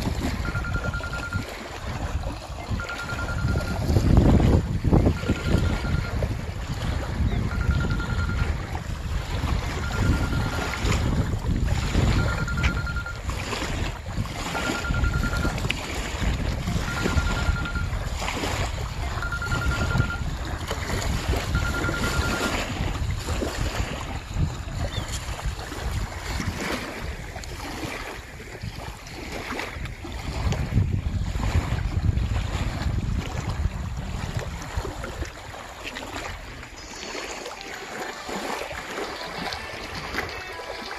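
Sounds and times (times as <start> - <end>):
wind buffeting microphone: 0.0 - 37.4
small waves lapping: 0.0 - 40.9
high pulsing tone: 0.3 - 1.6, 2.6 - 4.2, 5.0 - 6.4, 7.3 - 8.8, 9.6 - 11.0, 11.9 - 13.2, 14.5 - 15.6, 16.7 - 18.0, 19.1 - 20.3, 21.4 - 22.7.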